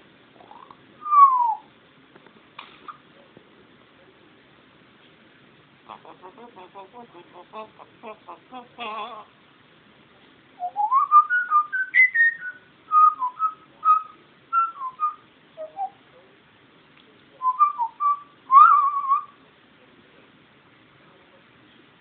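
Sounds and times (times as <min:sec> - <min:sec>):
parrot whistling: 0:00.4 - 0:01.7, 0:10.6 - 0:16.0, 0:17.4 - 0:19.3.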